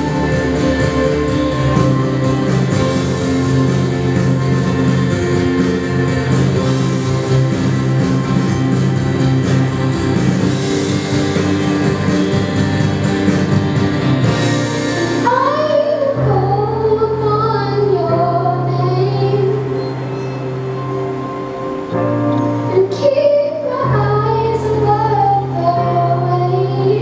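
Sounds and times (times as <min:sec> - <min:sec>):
instrumental music with guitar: 0:00.0 - 0:16.6
person singing: 0:22.6 - 0:27.0.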